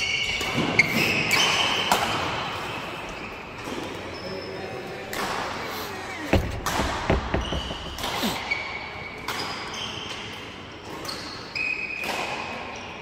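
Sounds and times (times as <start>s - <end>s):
sports shoes squeaking on floor: 3.1s - 10.3s.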